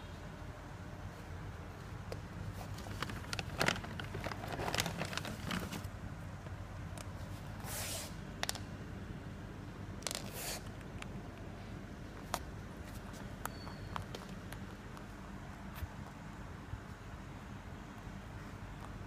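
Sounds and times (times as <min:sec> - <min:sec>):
rustling: 0:01.1 - 0:06.0.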